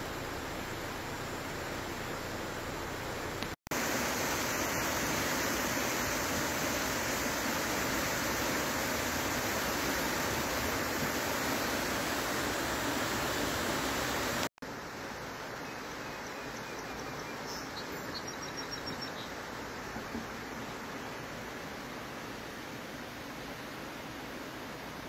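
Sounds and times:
floodwater rushing: 0.0 - 14.5.

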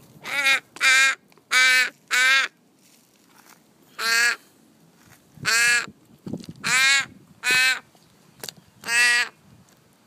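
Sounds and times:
young raven begging calls: 0.2 - 2.6, 3.9 - 4.5, 5.4 - 6.0, 6.6 - 7.9, 8.8 - 9.4.

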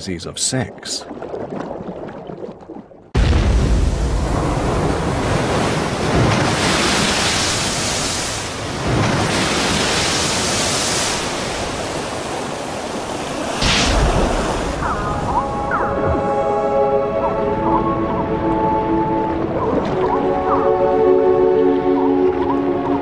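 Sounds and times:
waves crashing on rocks: 3.3 - 14.9.

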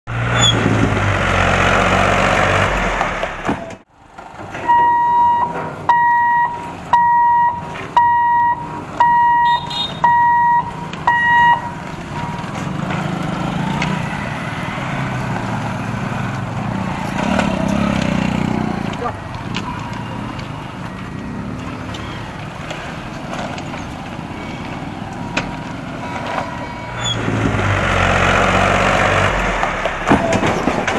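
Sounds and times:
passing motorcycles and traffic: 0.1 - 30.9
tractor engine running: 0.1 - 30.9
level crossing warning beeper: 4.6 - 15.2, 19.1 - 23.1, 23.8 - 27.8.

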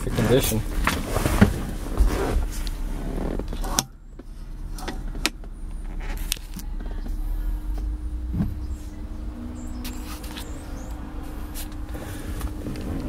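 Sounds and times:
low rumble: 0.0 - 13.0
clicks and creaks: 2.6 - 7.2.

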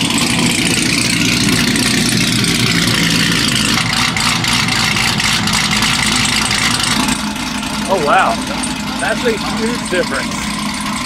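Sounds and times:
car engine idling with choppy lope: 0.0 - 11.0.

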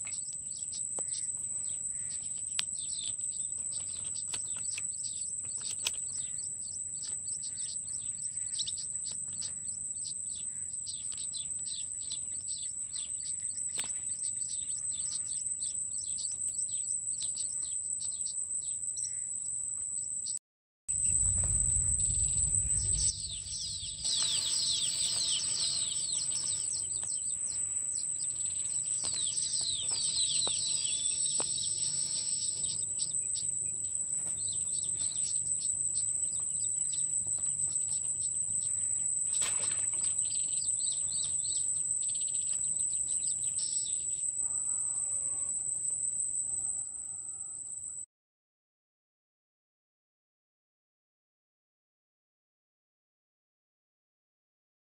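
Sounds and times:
birds chirping and singing: 0.0 - 20.4, 21.0 - 46.0
low rumble: 20.9 - 27.1
high-pitched insect drone: 21.0 - 48.0.

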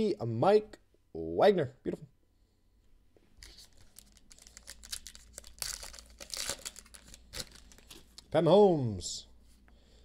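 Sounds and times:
card pack wrapper tearing: 3.4 - 8.0
wrapper crinkling and crackling: 3.4 - 8.2.

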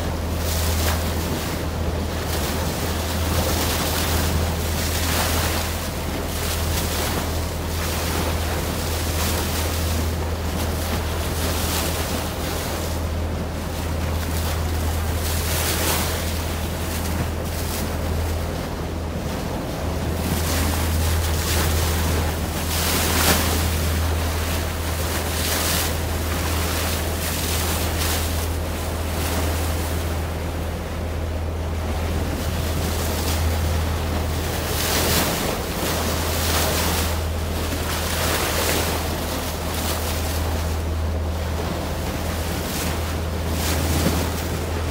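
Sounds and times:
boat engine drone: 0.0 - 44.9
water rushing along hull: 0.0 - 44.9.

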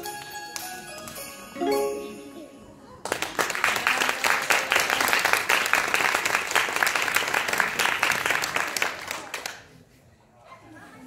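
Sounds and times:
audience applauding: 3.0 - 9.6.

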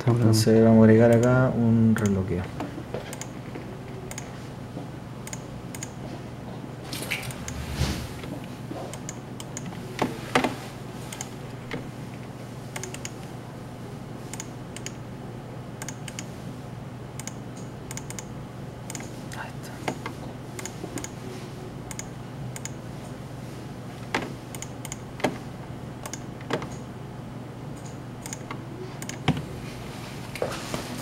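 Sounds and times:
steady low hum: 0.0 - 31.0
keyboard keystrokes: 1.0 - 1.4, 12.7 - 13.2, 26.0 - 26.8, 27.8 - 29.4.

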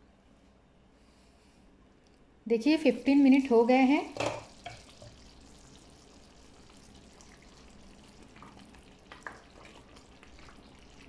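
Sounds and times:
curry simmering in a frying pan: 3.5 - 11.0
spatula stirring: 8.0 - 11.0.

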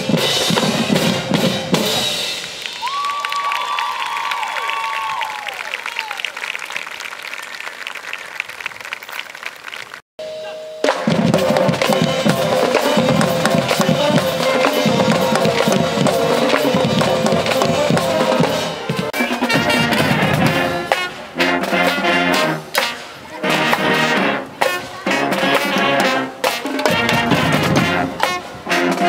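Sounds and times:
drumline snare and bass drums: 0.0 - 2.6, 10.8 - 29.0
marching band brass: 0.0 - 3.0, 10.8 - 29.0.

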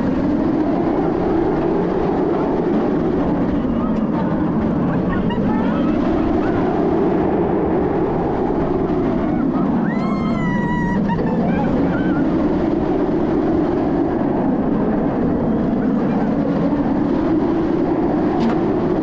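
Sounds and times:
roller coaster rumbling on track: 0.0 - 19.0
wind rushing on camera: 0.0 - 19.0
rider screaming: 9.2 - 12.3.

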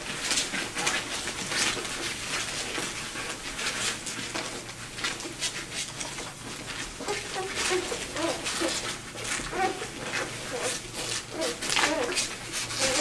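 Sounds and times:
rustling and scratching on bedsheet: 0.0 - 13.0
puppy squeaks: 7.0 - 8.8, 9.5 - 13.0.

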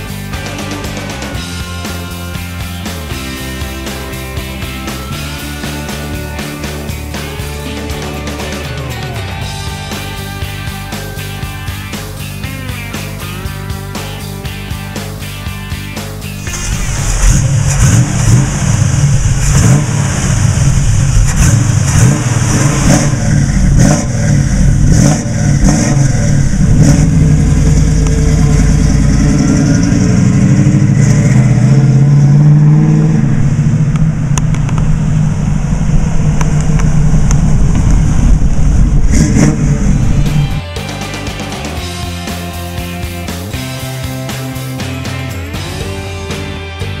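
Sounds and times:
car engine revving: 0.0 - 46.6
car accelerating away: 16.4 - 40.7.

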